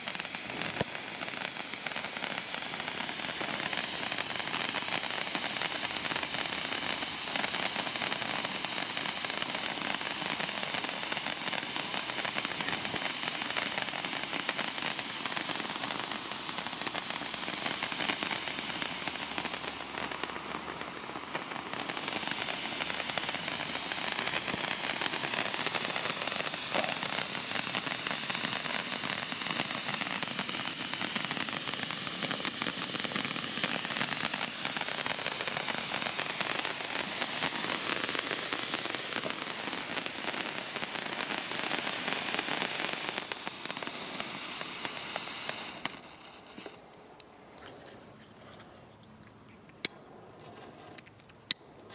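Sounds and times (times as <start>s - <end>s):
fountain fireworks hissing and crackling: 0.0s - 47.1s.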